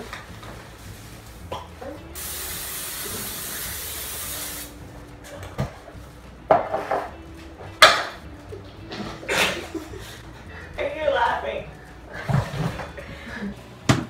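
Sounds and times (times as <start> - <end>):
aerosol spray hissing: 2.1 - 4.8
kitchenware knocking and clattering: 6.5 - 7.2, 7.8 - 8.2.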